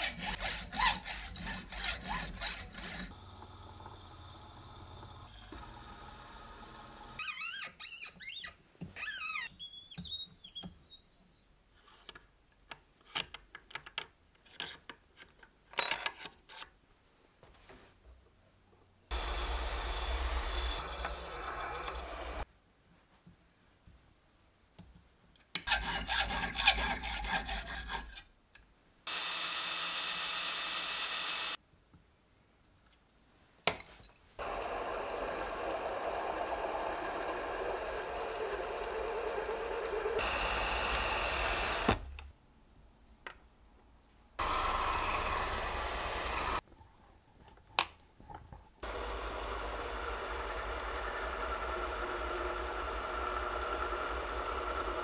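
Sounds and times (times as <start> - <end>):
rasping strokes on metal: 0.0 - 3.2, 25.7 - 28.3
small lathe motor running: 2.9 - 7.2, 19.1 - 22.4, 29.1 - 31.6, 34.4 - 42.0, 44.4 - 46.6, 48.8 - 55.0.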